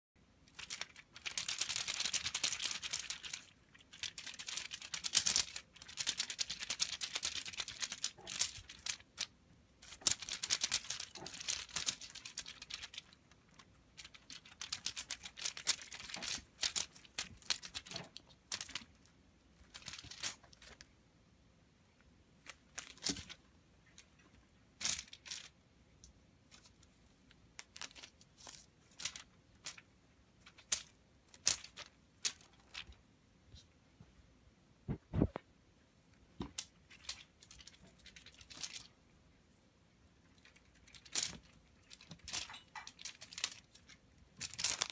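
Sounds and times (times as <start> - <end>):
cat toy rustling: 0.4 - 20.9, 22.4 - 25.6, 36.4 - 39.0, 40.2 - 44.9.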